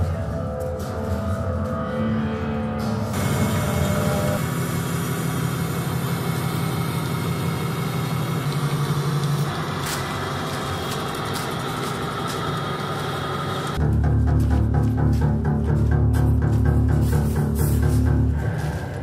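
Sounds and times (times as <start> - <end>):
engine-like low rumble: 2.9 - 19.0.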